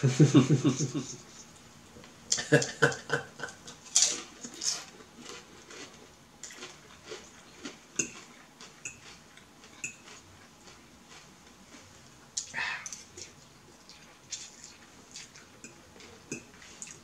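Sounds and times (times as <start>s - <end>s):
eating noises: 2.3s - 17.0s
fork scraping a plate: 3.9s - 5.4s.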